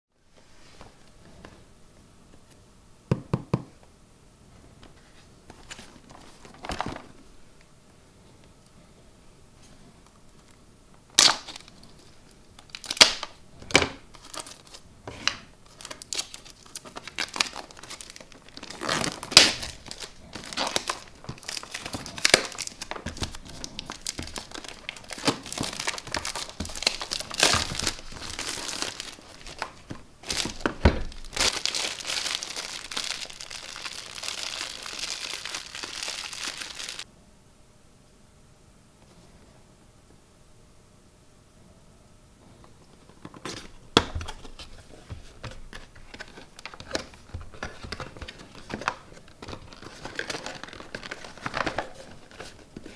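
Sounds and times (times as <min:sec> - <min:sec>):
plastic shrink-wrap crinkling: 0:11.1 - 0:37.1, 0:43.4 - 0:52.9.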